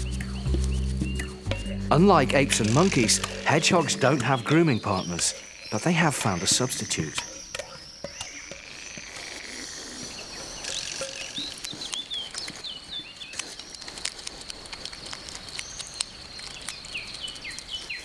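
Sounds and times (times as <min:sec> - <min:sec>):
small bird chirping: 0:00.0 - 0:14.1, 0:15.1 - 0:18.0
small clicks and crackles: 0:07.2 - 0:18.0.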